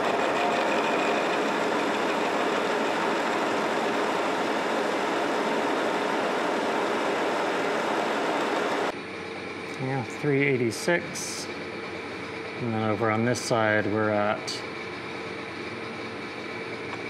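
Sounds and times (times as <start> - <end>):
lathe machining metal: 0.0 - 8.9.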